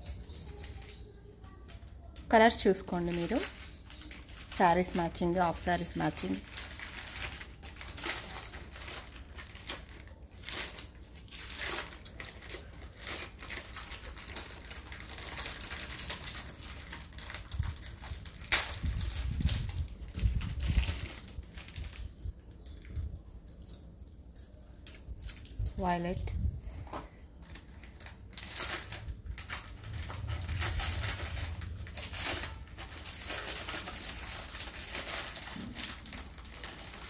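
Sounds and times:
glass bangles clinking: 0:23.2 - 0:26.7, 0:32.8 - 0:37.0.

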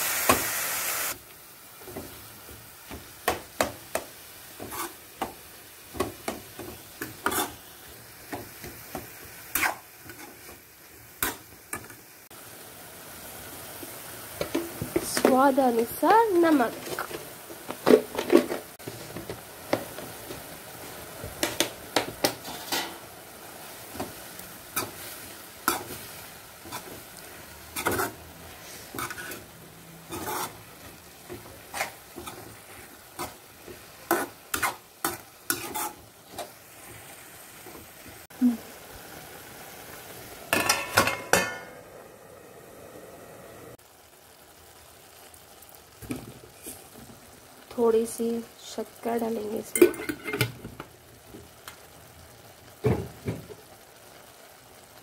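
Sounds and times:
frying sizzle: 0:00.0 - 0:55.0
spatula scraping metal pan: 0:04.6 - 0:05.0, 0:27.7 - 0:29.5, 0:30.1 - 0:30.6, 0:34.1 - 0:36.5.

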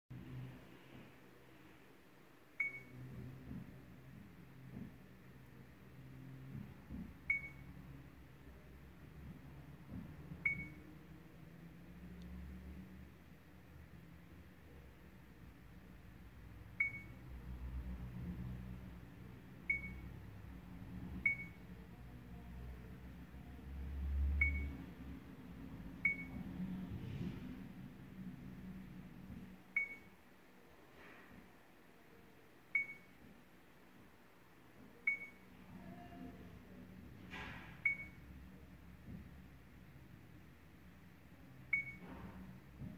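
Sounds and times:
short high key-press beeps: 0:02.6 - 0:03.0, 0:10.4 - 0:10.8, 0:26.0 - 0:26.4, 0:32.8 - 0:33.1, 0:35.1 - 0:35.4, 0:37.8 - 0:38.2, 0:41.7 - 0:42.0.

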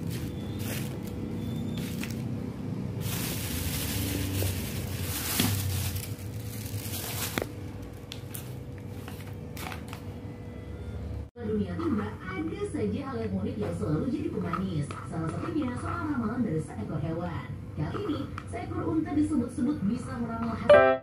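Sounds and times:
groceries rustling and crinkling: 0:00.0 - 0:10.2.

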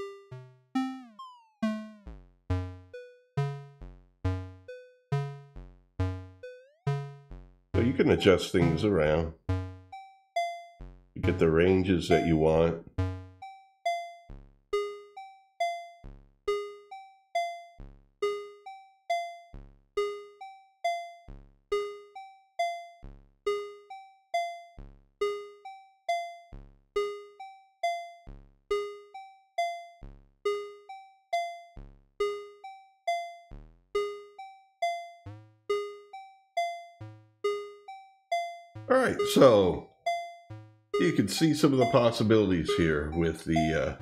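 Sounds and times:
short synth notes loop: 0:00.8 - 0:10.0, 0:11.2 - 0:13.4, 0:38.8 - 0:40.1, 0:41.0 - 0:44.0.

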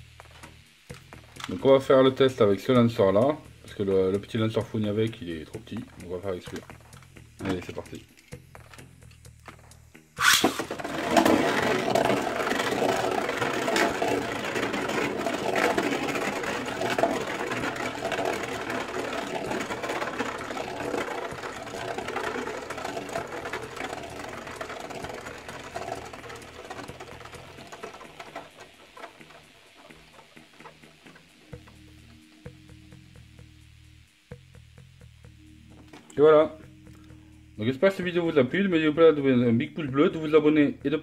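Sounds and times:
spinning top whirring and rattling: 0:00.0 - 0:41.0
spinning top launcher rip: 0:10.2 - 0:31.5.

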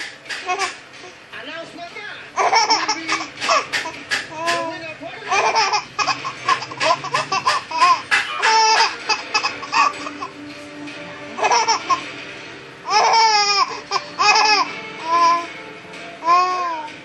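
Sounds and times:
toddler giggling: 0:02.4 - 0:03.7, 0:05.3 - 0:10.3, 0:11.4 - 0:12.0, 0:12.9 - 0:15.5.

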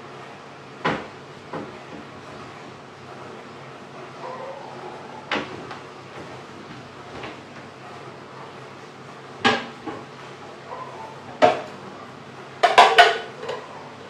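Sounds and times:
dishes and utensils clattering: 0:12.6 - 0:13.8.

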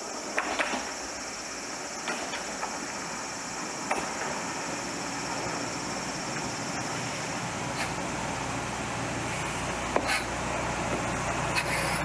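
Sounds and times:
sharp clicks from train: 0:00.0 - 0:01.1, 0:02.0 - 0:02.8, 0:03.8 - 0:04.5
diesel railcar engine running: 0:00.0 - 0:12.0.

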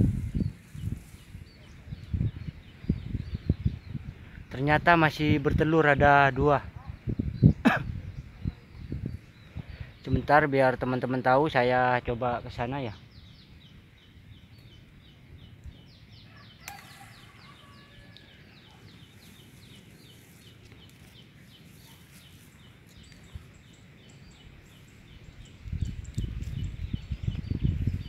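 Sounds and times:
small bird chirping: 0:12.7 - 0:28.0
branches rustling and knocking: 0:19.2 - 0:23.5.

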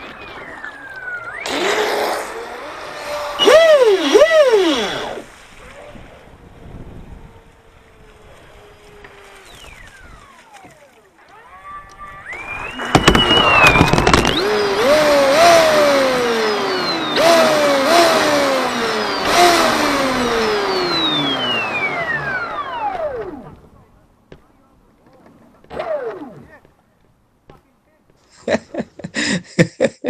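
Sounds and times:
model boat motor whining: 0:00.0 - 0:24.0, 0:25.6 - 0:26.7
loud rushing noise: 0:12.6 - 0:21.6.

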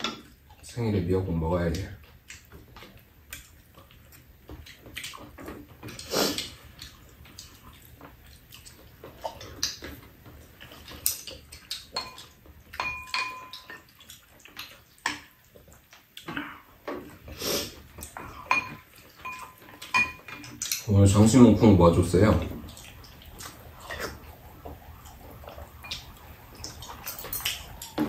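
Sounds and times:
slurping soup: 0:04.1 - 0:09.8, 0:15.6 - 0:18.5
chopsticks and spoons clinking bowls: 0:12.0 - 0:13.9, 0:18.1 - 0:20.9.

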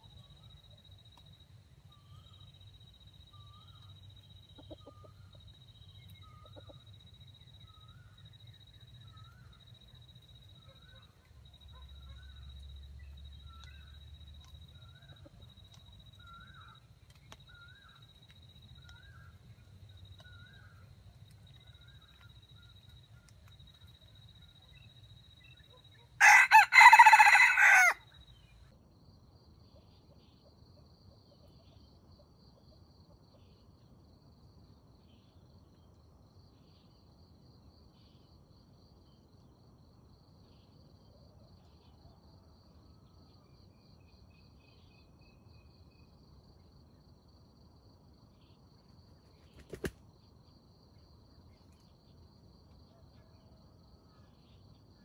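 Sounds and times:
faint insect trill: 0:00.0 - 0:55.0
rooster crowing: 0:26.2 - 0:28.1.

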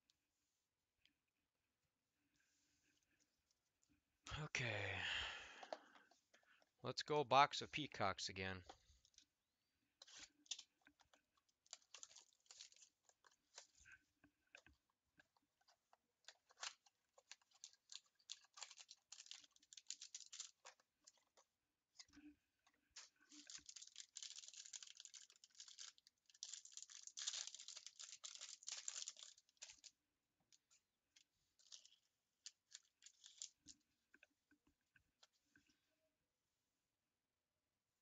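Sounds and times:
wrapper tearing and crinkling: 0:10.0 - 0:13.8, 0:16.2 - 0:21.3, 0:23.0 - 0:29.9, 0:31.6 - 0:33.7.

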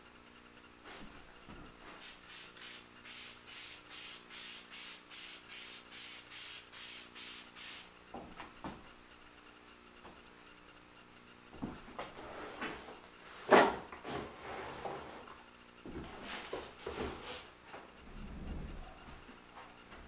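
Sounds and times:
steady low hum: 0:00.0 - 0:20.0
aerosol spray hissing: 0:02.0 - 0:07.9.

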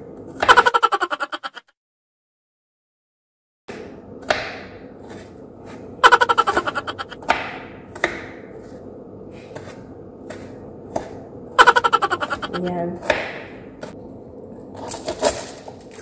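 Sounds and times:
knife chopping on cutting board: 0:03.7 - 0:05.8, 0:07.2 - 0:08.8, 0:09.5 - 0:11.2, 0:13.0 - 0:14.0.

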